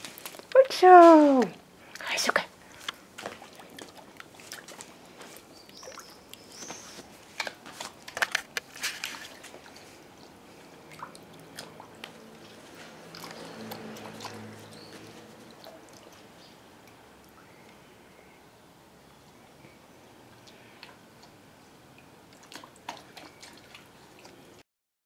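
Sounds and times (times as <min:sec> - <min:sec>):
water splashing in paddling pool: 0:02.6 - 0:08.0, 0:08.7 - 0:17.8, 0:20.3 - 0:24.6.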